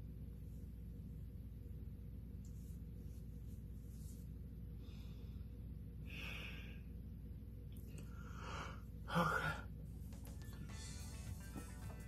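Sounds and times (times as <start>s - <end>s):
person breathing noisily: 4.7s - 6.9s, 8.0s - 9.7s.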